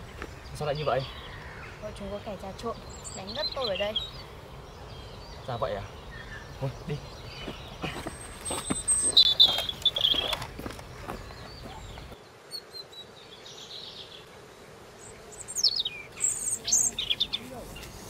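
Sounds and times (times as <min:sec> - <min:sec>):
birds chirping: 0:00.0 - 0:18.0
faint outdoor background: 0:00.0 - 0:18.0
whistled bird calls: 0:07.4 - 0:10.4.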